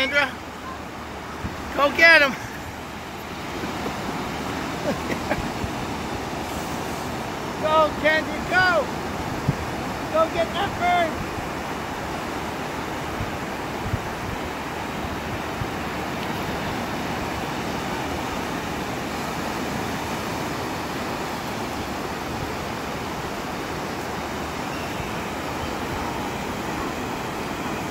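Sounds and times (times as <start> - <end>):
ocean surf breaking: 0.0 - 27.9
wind buffeting microphone: 1.1 - 1.8, 9.0 - 27.9.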